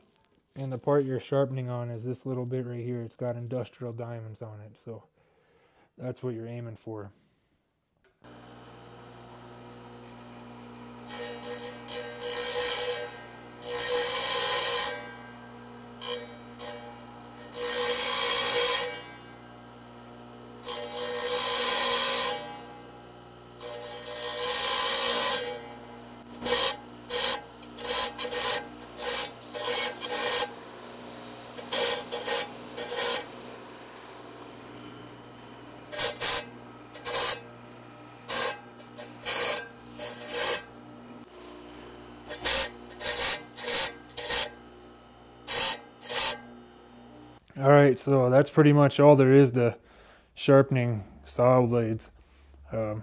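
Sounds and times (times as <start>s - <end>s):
saw motor humming: 8.2s - 47.4s
saw blade teeth grinding: 8.4s - 47.0s.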